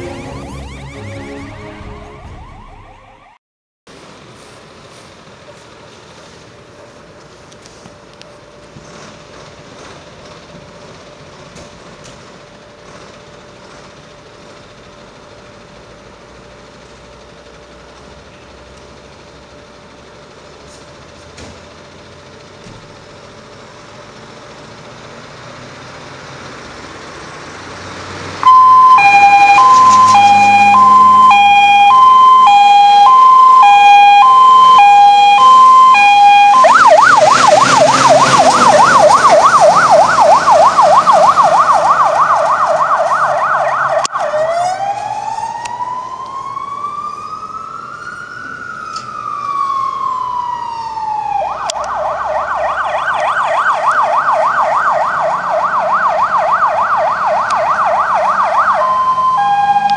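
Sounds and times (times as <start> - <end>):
diesel engine rumbling: 0.0 - 3.2, 3.9 - 59.9
fire engine siren: 0.0 - 3.4, 27.6 - 59.9.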